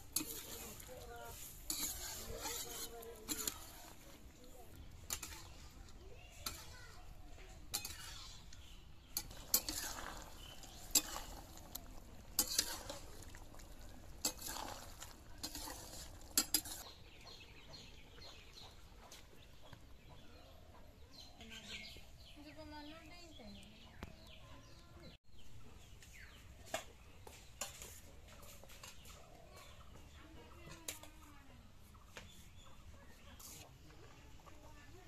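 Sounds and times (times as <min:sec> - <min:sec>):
metal spatula scraping wok: 0:00.0 - 0:16.9.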